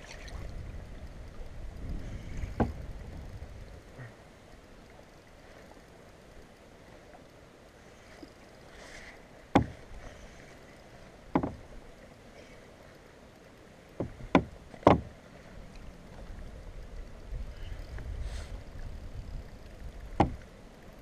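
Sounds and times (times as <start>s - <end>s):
knocks against kayak hull: 2.5s - 2.8s, 9.5s - 9.8s, 11.3s - 11.6s, 14.0s - 15.1s, 20.1s - 20.4s.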